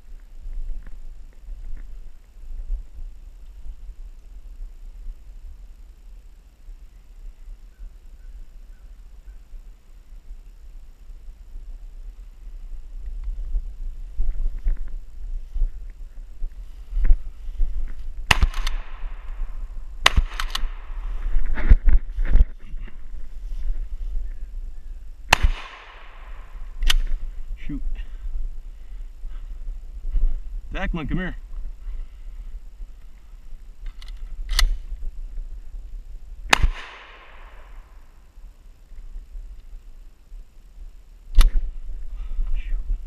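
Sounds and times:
movement through brush: 0:12.6 - 0:30.7
shotgun blasts with echo: 0:18.3 - 0:19.3, 0:20.0 - 0:21.0, 0:25.3 - 0:27.1, 0:36.5 - 0:37.9.

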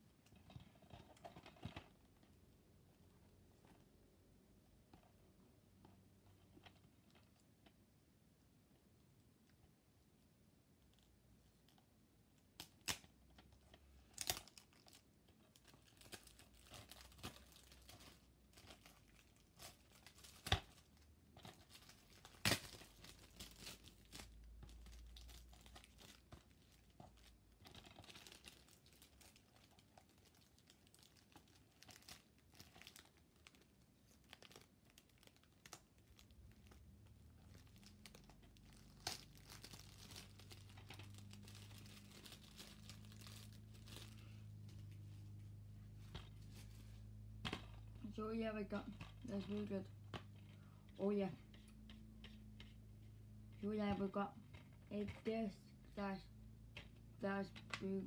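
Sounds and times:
plastic wrapping crinkling: 0:12.6 - 0:45.2.

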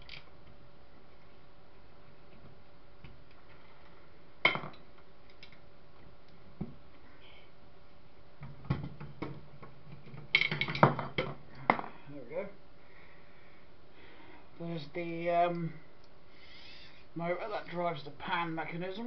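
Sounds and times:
metal parts and tools clinking: 0:10.3 - 0:11.7.

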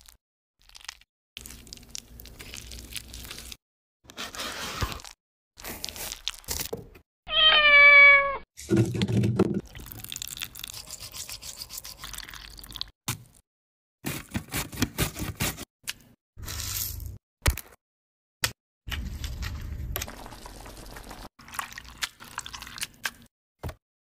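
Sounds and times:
cat meowing: 0:07.3 - 0:08.4.

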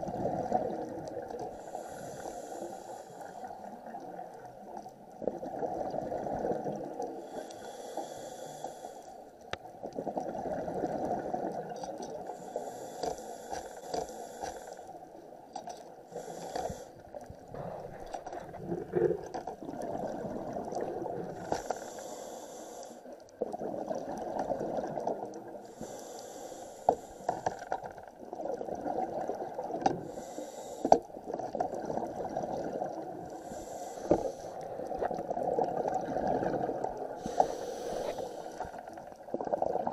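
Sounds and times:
exhaled air bubbling: 0:00.0 - 0:02.2, 0:03.3 - 0:08.6, 0:09.8 - 0:12.9, 0:16.1 - 0:26.0, 0:28.1 - 0:39.9
diver breathing through regulator: 0:01.5 - 0:03.5, 0:07.2 - 0:09.3, 0:12.2 - 0:15.0, 0:16.1 - 0:19.4, 0:21.3 - 0:23.2, 0:25.6 - 0:27.8, 0:30.0 - 0:31.1, 0:33.3 - 0:34.9, 0:36.8 - 0:38.9
low underwater rumble: 0:17.1 - 0:21.5.

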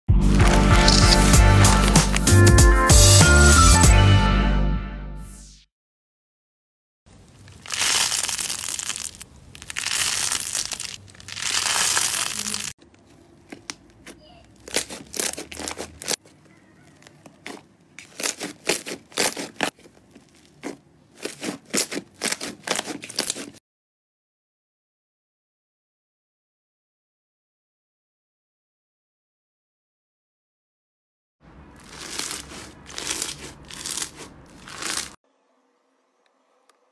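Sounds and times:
slime crinkling and crackling: 0:00.3 - 0:02.3, 0:07.1 - 0:23.6, 0:31.7 - 0:35.2.

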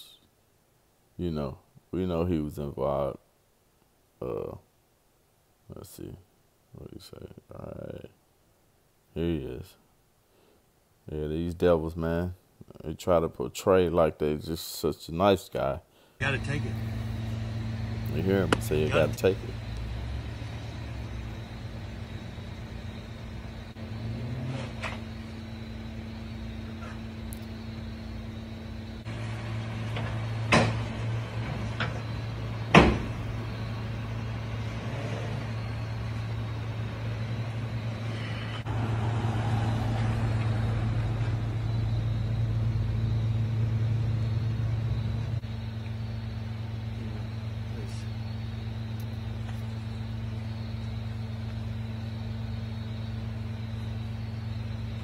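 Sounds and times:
vehicle engines idling: 0:16.2 - 0:55.0
sharp knocks: 0:30.0 - 0:31.0, 0:32.7 - 0:33.2.

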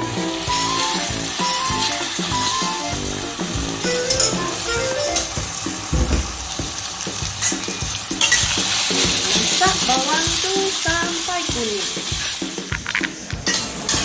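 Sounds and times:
onions sizzling in hot oil: 0:00.0 - 0:14.0
metal spoon scraping a pan: 0:07.4 - 0:09.6.

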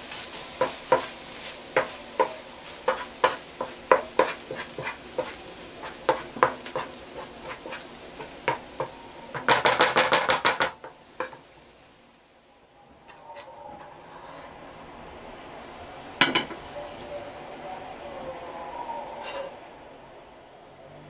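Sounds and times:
wooden spoon scraping frying pan: 0:00.0 - 0:11.5, 0:19.2 - 0:19.5
rice sizzling: 0:00.0 - 0:20.4.

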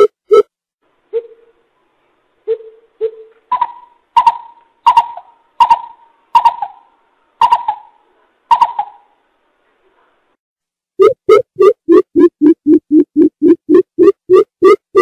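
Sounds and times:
bird deep hooting calls: 0:02.5 - 0:09.1.

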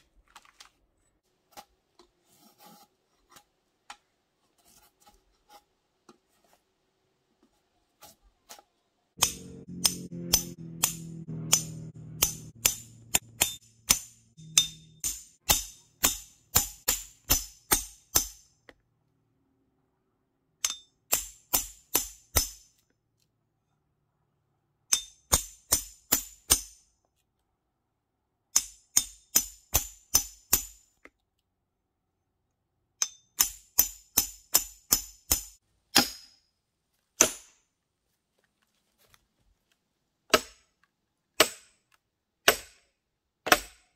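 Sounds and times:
hammer striking axe head: 0:09.2 - 0:18.5, 0:20.6 - 0:22.7, 0:24.9 - 0:26.8, 0:28.5 - 0:30.8, 0:33.0 - 0:36.4, 0:37.2 - 0:37.6, 0:40.3 - 0:40.7, 0:41.4 - 0:41.8, 0:42.4 - 0:43.9.

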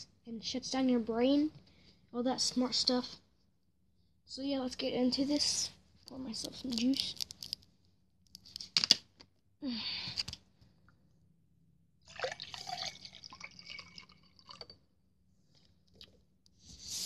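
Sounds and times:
juice poured into a glass: 0:12.1 - 0:14.8.

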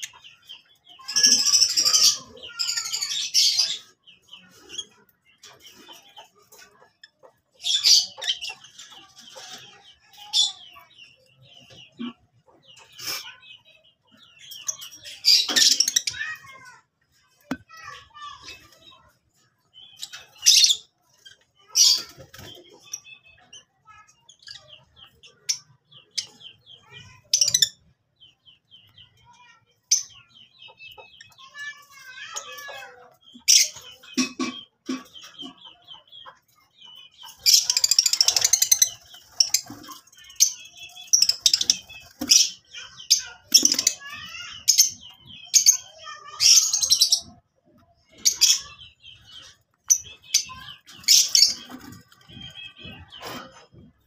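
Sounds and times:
lovebirds chirping and squeaking: 0:00.0 - 0:54.0.

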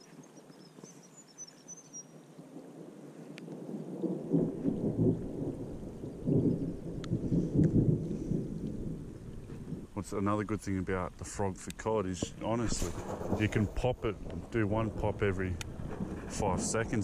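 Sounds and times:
rain falling on pond water: 0:00.0 - 0:17.0
thunder rumbling: 0:03.5 - 0:11.2, 0:12.2 - 0:17.0.

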